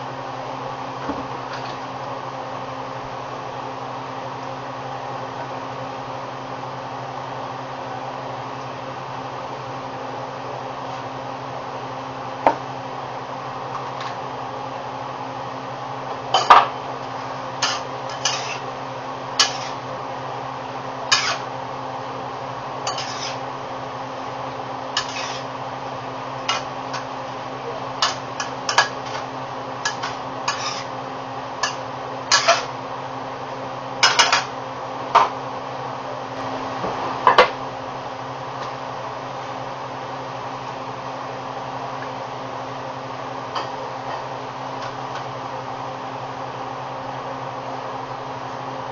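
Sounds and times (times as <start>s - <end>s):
utensil scraping steel wok: 17.6s - 18.7s, 19.4s - 19.8s, 21.1s - 21.5s, 22.8s - 23.5s, 25.0s - 25.5s, 29.9s - 31.0s, 31.6s - 32.7s.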